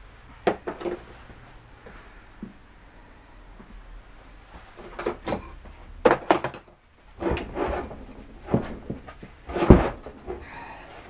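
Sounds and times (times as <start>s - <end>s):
metal casing scraping: 7.0s - 10.7s
heavy thud: 7.2s - 10.6s.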